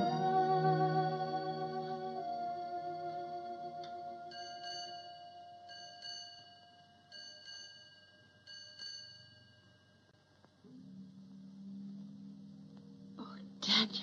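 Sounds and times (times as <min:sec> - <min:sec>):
held orchestral chord: 0:00.0 - 0:04.5
clock bell striking: 0:04.3 - 0:09.9.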